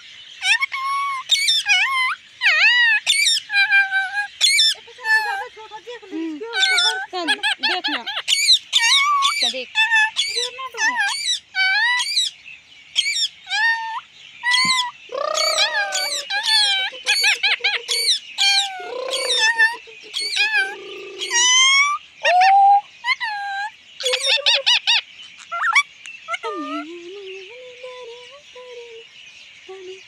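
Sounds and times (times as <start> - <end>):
parakeet shrill screeches: 0.4 - 5.4, 6.6 - 12.3, 13.0 - 22.4
parakeet grating call: 0.4 - 5.5, 6.6 - 12.3, 13.0 - 22.4.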